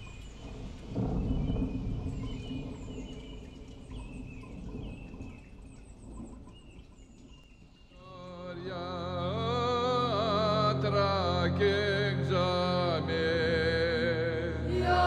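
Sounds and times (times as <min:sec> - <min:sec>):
low storm rumble: 0:00.0 - 0:15.0
folk chanting: 0:08.0 - 0:15.0
steady low drone: 0:08.0 - 0:15.0.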